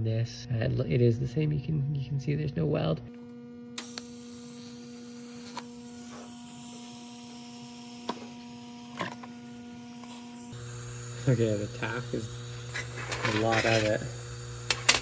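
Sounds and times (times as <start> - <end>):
welding equipment hum: 3.1 - 15.0.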